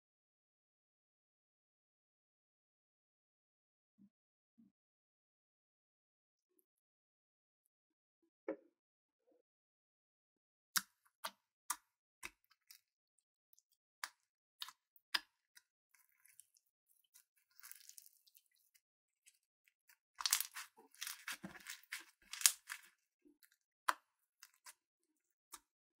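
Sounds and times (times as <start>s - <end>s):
slime squishing and popping: 20.2s - 22.9s
crunchy crackling of foam beads: 20.2s - 23.0s.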